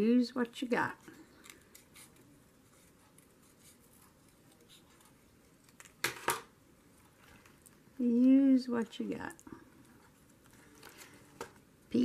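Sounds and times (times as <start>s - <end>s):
paper rustling: 9.7s - 12.0s.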